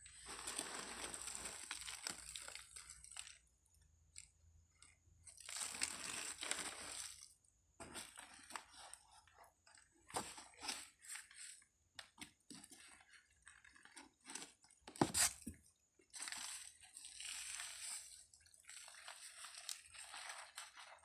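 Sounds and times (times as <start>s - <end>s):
newspaper rustling and crinkling: 18.9s - 21.0s.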